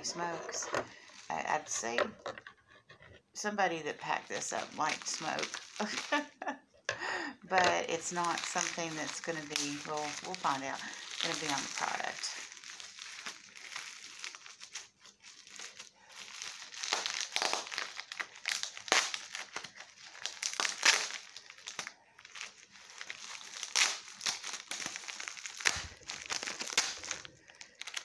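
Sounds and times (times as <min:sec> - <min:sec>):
packing material crinkling: 0:04.0 - 0:06.4, 0:07.7 - 0:28.0.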